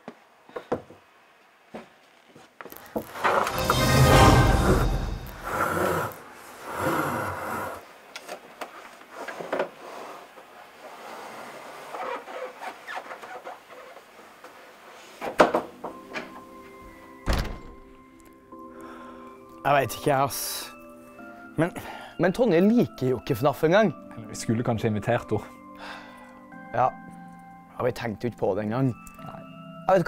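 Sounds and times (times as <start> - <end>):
soft background music: 3.0 - 6.2, 15.3 - 30.0.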